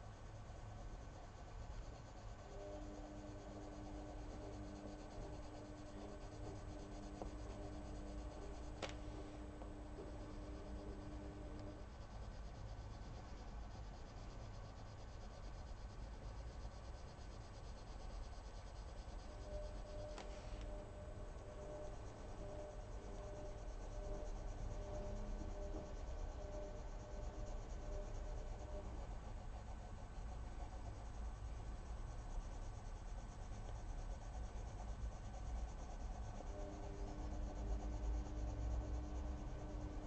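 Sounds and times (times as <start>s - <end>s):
low hum: 2.4s - 14.9s, 16.9s - 32.6s.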